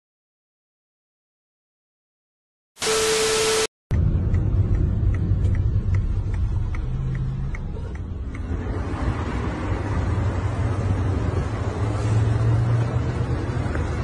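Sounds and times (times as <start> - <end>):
light regular ticking: 3.9 - 8.6
car engine and road rumble: 3.9 - 14.0.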